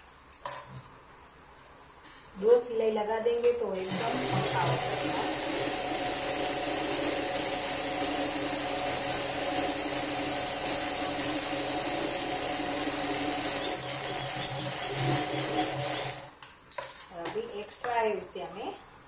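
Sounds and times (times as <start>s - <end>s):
sewing machine stitching: 3.8s - 16.4s.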